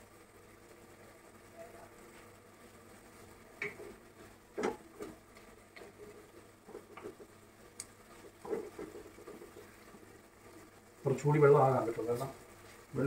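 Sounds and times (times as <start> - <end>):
spatula scraping and tapping pan: 3.6 - 4.0, 4.6 - 10.0.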